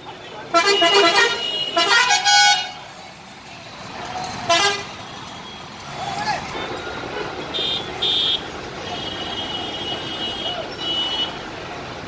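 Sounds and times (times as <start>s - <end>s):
traffic noise: 0.0s - 12.0s
bus horn honking: 0.5s - 2.8s, 4.5s - 4.9s, 7.1s - 11.4s.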